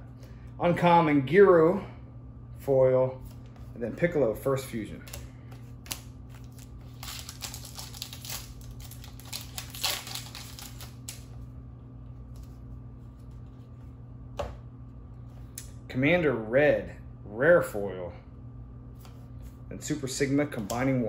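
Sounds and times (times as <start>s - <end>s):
steady low hum: 0.0s - 21.0s
foil pack tearing and crinkling: 5.8s - 11.3s.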